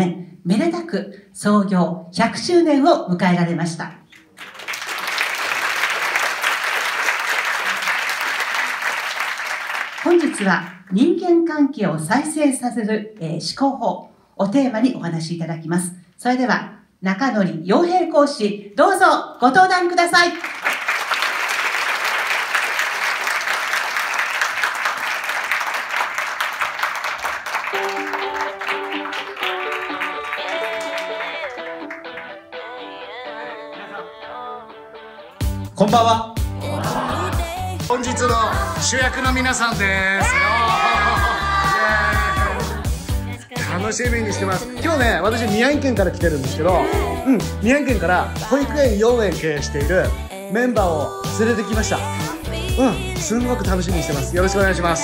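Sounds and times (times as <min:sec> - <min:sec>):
audience applauding: 0:04.2 - 0:10.9, 0:20.4 - 0:32.5, 0:40.2 - 0:43.1
music with sustained notes: 0:27.8 - 0:33.3.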